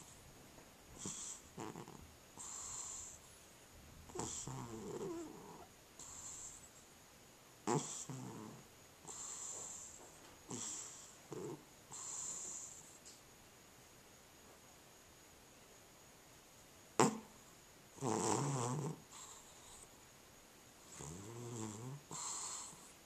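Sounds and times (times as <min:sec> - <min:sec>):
cat snoring: 0:01.0 - 0:03.2, 0:04.1 - 0:06.7, 0:07.6 - 0:13.0, 0:17.0 - 0:17.3, 0:18.0 - 0:19.9, 0:20.8 - 0:23.0.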